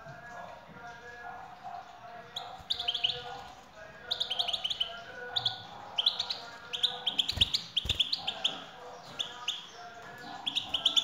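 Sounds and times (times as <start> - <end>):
bird twittering chirps: 2.4 - 3.3, 4.0 - 11.0.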